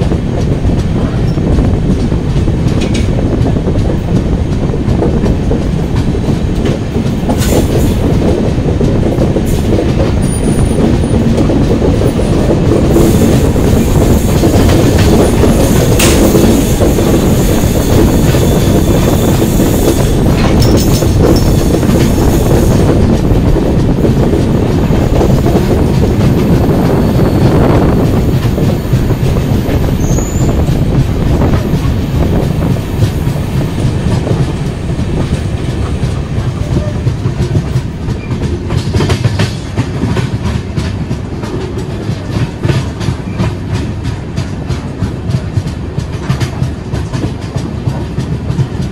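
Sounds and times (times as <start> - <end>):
train wheels rumbling on rails: 0.0 - 48.9.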